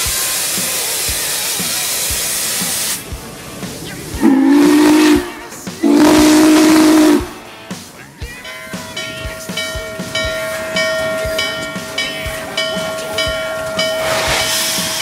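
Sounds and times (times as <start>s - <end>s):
steam locomotive hissing: 0.0s - 15.0s
deep steam whistle blasts: 4.2s - 7.4s, 13.5s - 15.0s.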